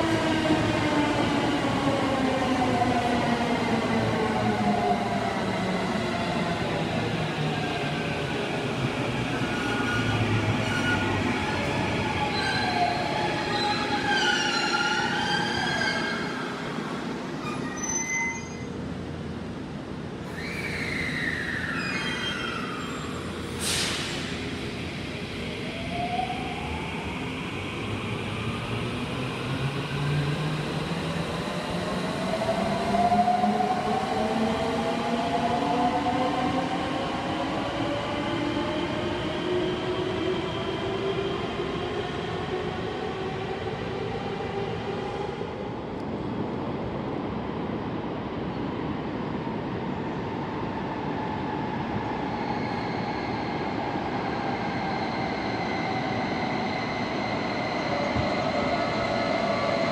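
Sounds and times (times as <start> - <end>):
short sharp hiss: 23.5 - 24.4.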